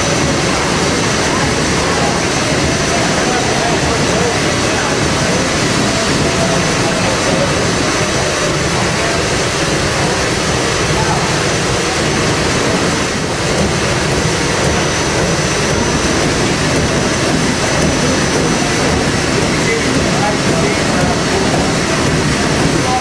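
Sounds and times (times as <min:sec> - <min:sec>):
boiler burners roaring: 0:00.0 - 0:23.0
steam engine running: 0:00.0 - 0:23.0.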